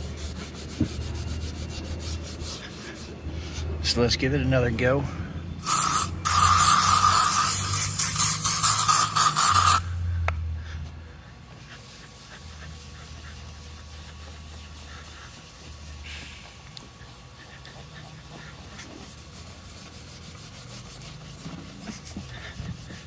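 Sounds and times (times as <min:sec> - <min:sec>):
rag rubbing on plastic lens: 0:05.6 - 0:09.8
aerosol spray hissing: 0:05.6 - 0:10.0.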